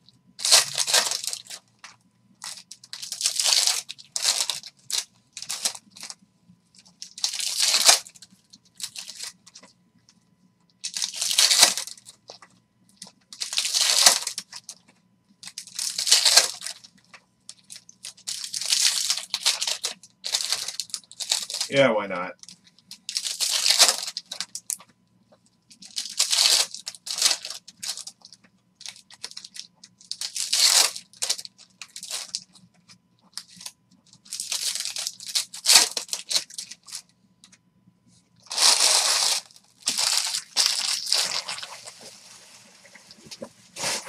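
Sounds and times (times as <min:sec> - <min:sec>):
foil wrappers tearing and crinkling: 0:00.4 - 0:01.7, 0:02.4 - 0:06.2, 0:06.8 - 0:09.6, 0:10.8 - 0:14.8, 0:15.4 - 0:21.8, 0:22.4 - 0:24.8, 0:25.7 - 0:32.6, 0:33.2 - 0:37.1, 0:38.5 - 0:44.0.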